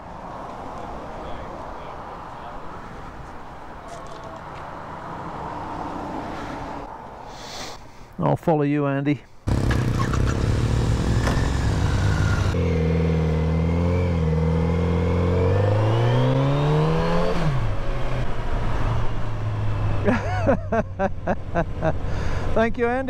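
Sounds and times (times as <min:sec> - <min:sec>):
motorcycle engine revving: 0:09.5 - 0:20.0.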